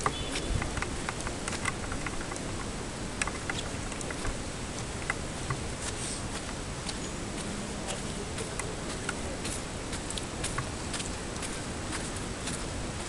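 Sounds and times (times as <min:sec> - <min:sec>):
light irregular clicks: 0:00.0 - 0:13.0
outdoor background hiss: 0:00.0 - 0:13.0.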